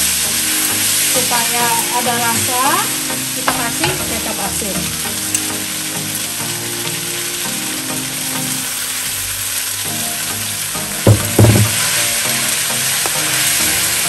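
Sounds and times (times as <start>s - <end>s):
noodles sizzling in oil: 0.0s - 14.0s
glass bottle knocking on counter: 11.1s - 11.8s.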